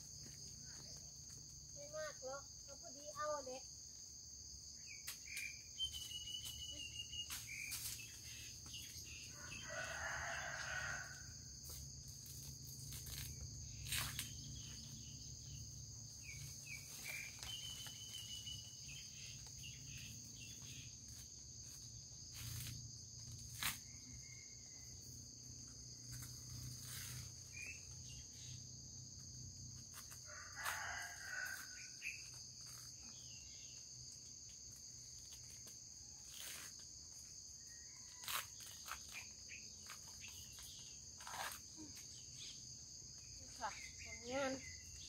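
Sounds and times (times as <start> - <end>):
insects chorus: 0.0 - 45.0
rooster crowing: 9.3 - 11.5, 30.2 - 32.0.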